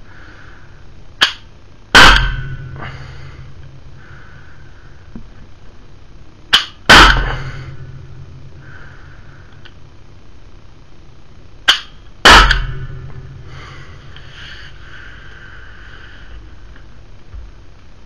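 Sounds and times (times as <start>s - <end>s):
air gun shot pop: 6.5s - 7.6s, 11.7s - 12.9s.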